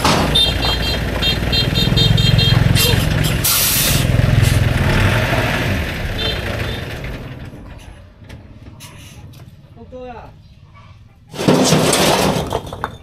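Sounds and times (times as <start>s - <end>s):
vehicle engine running: 0.0s - 9.8s.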